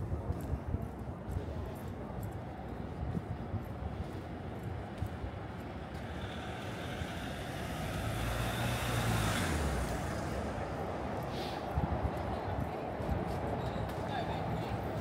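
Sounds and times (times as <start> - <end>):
vehicle passing by: 5.9 - 11.4.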